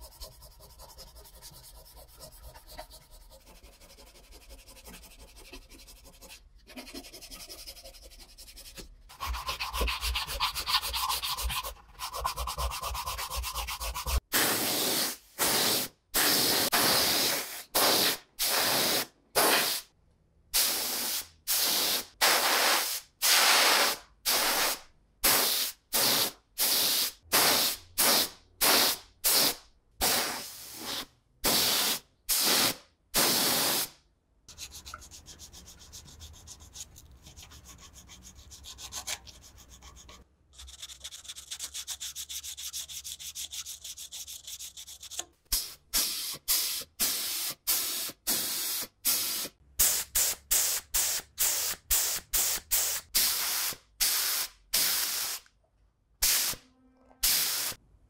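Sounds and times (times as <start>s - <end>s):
sandpaper rubbing metal: 0.0s - 14.9s, 34.5s - 45.2s
spray gun hissing bursts: 57.2s - 57.8s.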